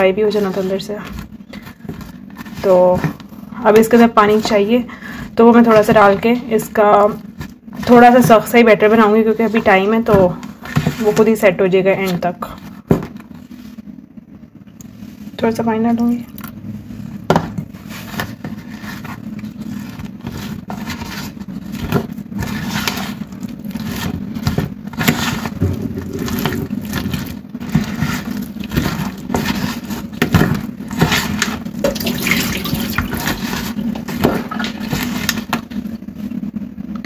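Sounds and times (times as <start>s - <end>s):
batter being mixed: 0.0s - 37.0s
wet squelching and scraping: 16.3s - 35.5s
water pouring into bowl: 25.7s - 27.2s, 31.9s - 33.1s.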